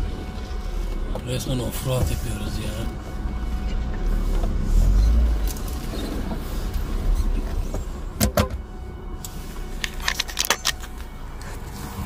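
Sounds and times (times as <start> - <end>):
car engine running low: 0.0 - 12.0
sharp clicks and knocks: 8.2 - 8.6.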